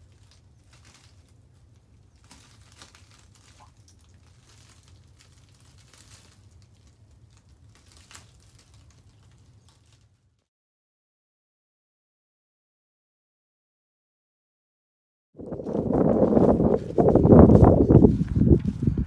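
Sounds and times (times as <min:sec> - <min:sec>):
faint rustling: 0:00.0 - 0:10.5, 0:15.4 - 0:19.0
steady low rumble: 0:15.4 - 0:19.0.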